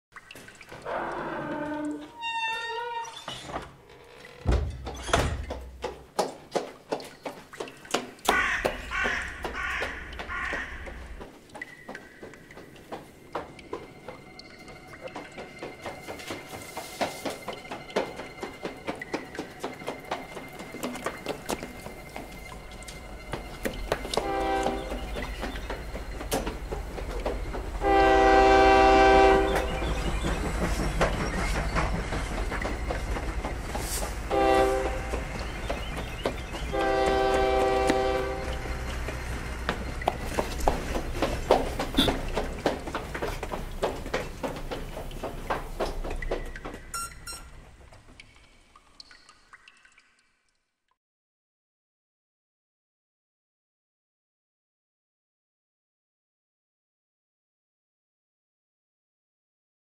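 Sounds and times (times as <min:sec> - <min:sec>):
sharp knocks and thunks: 0:04.4 - 0:06.7
horn blowing: 0:24.2 - 0:25.0, 0:27.8 - 0:29.7, 0:34.3 - 0:35.3, 0:36.7 - 0:38.7
brief pitched tone: 0:47.0 - 0:47.5.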